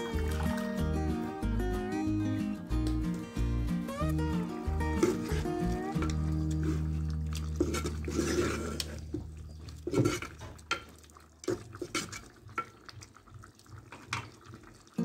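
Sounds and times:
background music: 0.0 - 8.2
wooden spoon stirring in clay pot: 4.7 - 14.8.

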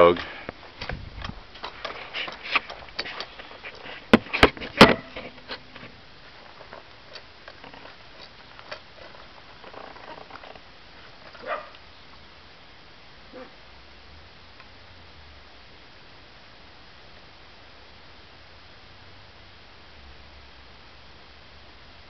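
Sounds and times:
dog barking: 11.4 - 11.8, 13.3 - 13.6.

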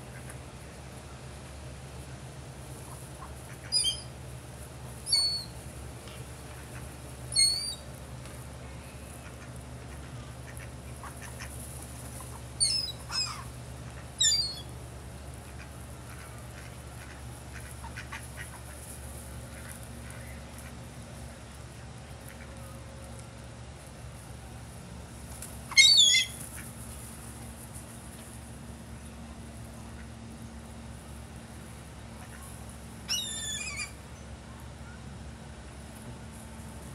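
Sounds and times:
low background rumble: 0.0 - 36.9
gulls squawking: 3.0 - 4.1, 5.0 - 5.6, 6.5 - 7.8, 12.2 - 14.7, 25.7 - 26.7, 32.1 - 34.0.

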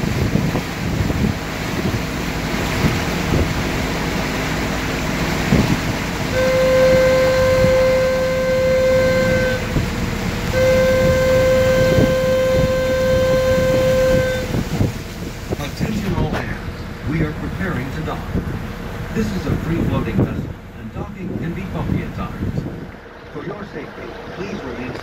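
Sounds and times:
boat horn blasts: 0.0 - 15.5
wind on microphone: 0.0 - 23.0
boat engine rumble: 0.0 - 25.0.

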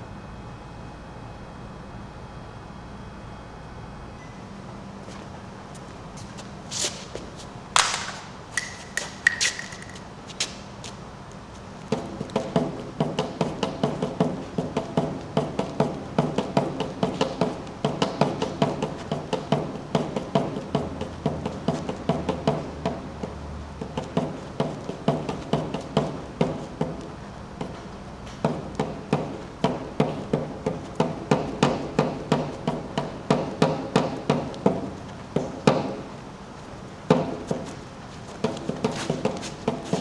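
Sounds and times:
tool knocking on paper: 11.9 - 27.8, 28.4 - 36.0, 37.1 - 37.7, 38.4 - 40.0.

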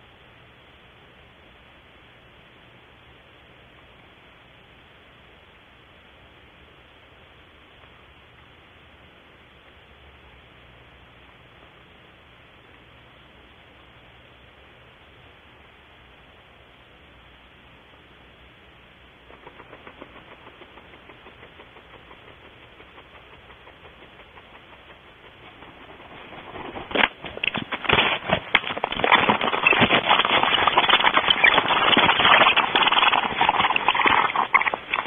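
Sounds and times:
owl scratching and rustling: 19.3 - 35.0.

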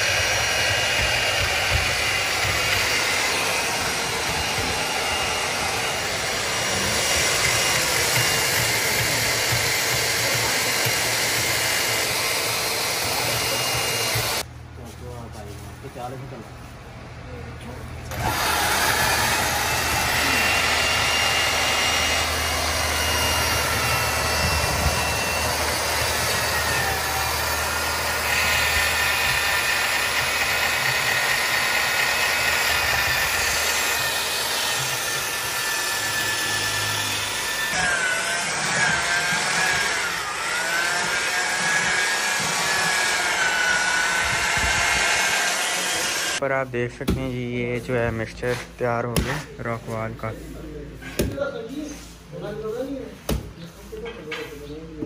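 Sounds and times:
power tool whining: 0.0 - 14.5, 18.1 - 46.4.

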